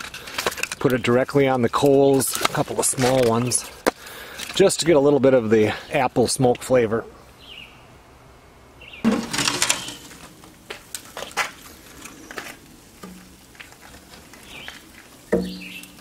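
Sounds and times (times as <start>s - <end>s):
wood clattering against metal firebox: 9.1s - 12.2s, 12.9s - 16.0s.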